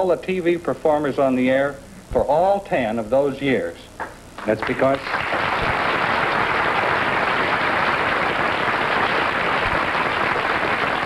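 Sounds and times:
studio audience applauding: 4.0 - 11.0.

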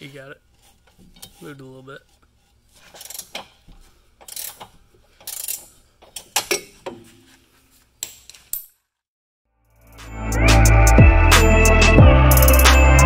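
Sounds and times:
ratcheting wrench clicking: 2.9 - 3.6, 4.2 - 6.7.

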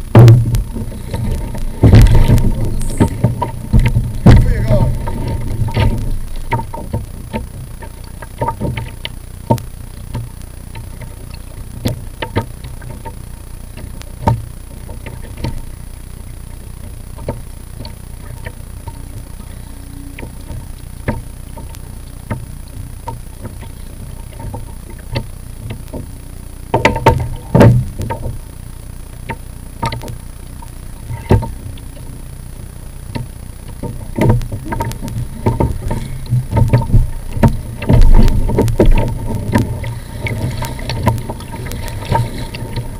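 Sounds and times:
small waves lapping: 0.0 - 28.2
low steady rumble: 0.0 - 42.9
water knocking on kayak hull: 0.1 - 7.4.

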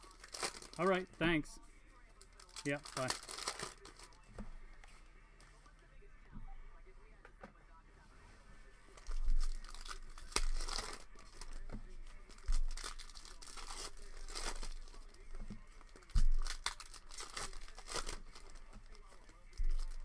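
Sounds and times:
foil wrapper crinkling and tearing: 0.0 - 1.0, 2.2 - 4.2, 9.0 - 11.6, 12.2 - 20.0.

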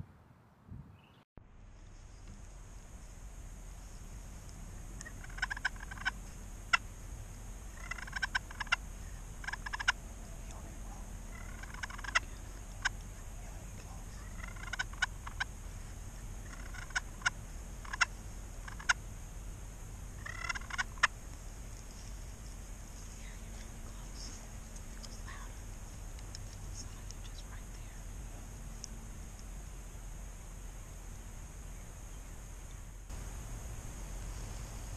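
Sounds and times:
turkey call yelps and clucks: 5.0 - 6.9, 7.7 - 10.6, 11.2 - 15.5, 16.2 - 19.0, 20.2 - 21.2.

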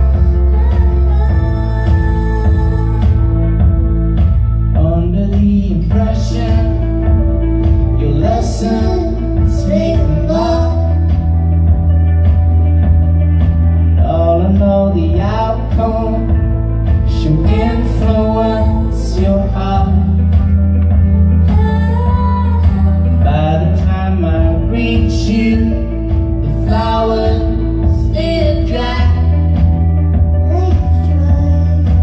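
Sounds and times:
woman singing: 0.0 - 4.4, 8.0 - 11.4, 17.0 - 32.0
guitar: 0.0 - 32.0
keyboard: 0.0 - 32.0
sustained low bass note: 0.0 - 32.0.

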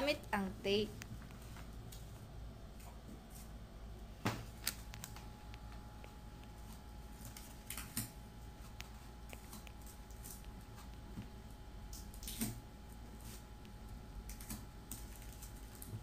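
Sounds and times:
plastic crinkling: 14.3 - 16.0.

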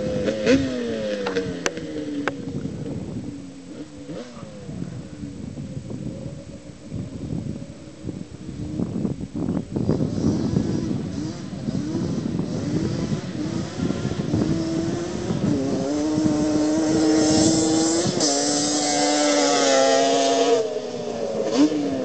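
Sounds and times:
quad engine at full throttle: 0.0 - 22.0.

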